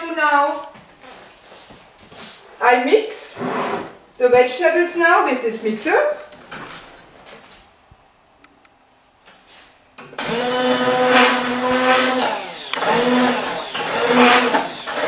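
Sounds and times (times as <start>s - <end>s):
immersion blender motor: 10.2s - 15.0s.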